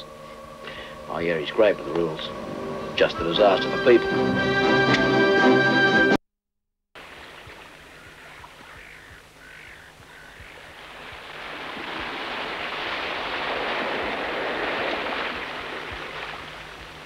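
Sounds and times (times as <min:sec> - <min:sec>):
small waves washing on shore: 0:07.0 - 0:17.0.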